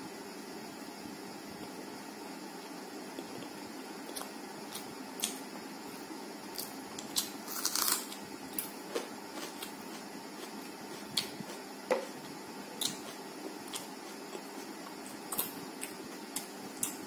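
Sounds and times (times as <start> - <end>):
person chewing crunchy food: 6.5 - 17.0.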